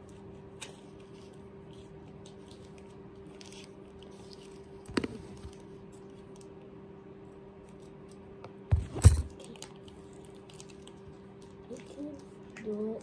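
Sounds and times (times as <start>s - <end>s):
faint hum: 0.0s - 13.0s
plastic wrapping crinkling: 9.0s - 13.0s.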